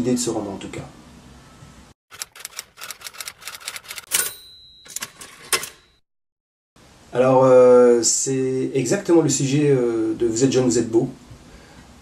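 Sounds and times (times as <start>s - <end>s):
typewriter keys clacking: 2.1s - 5.9s
typewriter bell ring: 2.1s - 6.0s.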